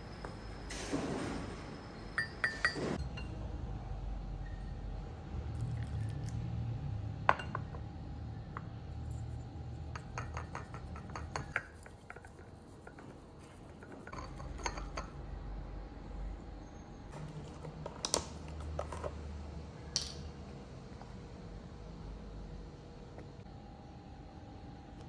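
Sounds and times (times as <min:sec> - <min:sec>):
porcelain and glass clinking: 0:02.2 - 0:03.4, 0:07.3 - 0:07.8, 0:08.6 - 0:12.3, 0:13.8 - 0:15.2
water pouring into a teacup: 0:05.5 - 0:06.4
tea whisk tapping in a cup: 0:10.0 - 0:12.4.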